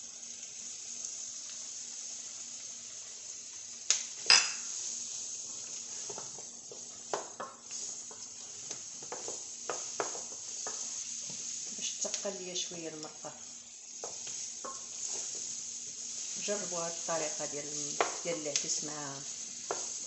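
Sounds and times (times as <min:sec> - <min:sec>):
vegetables sizzling in a pan: 0:00.0 - 0:20.0
spoon knocking against pan: 0:09.0 - 0:10.8.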